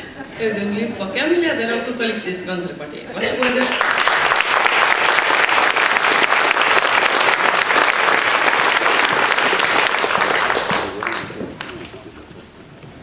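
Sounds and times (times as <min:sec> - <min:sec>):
audience applauding: 0:03.6 - 0:12.6.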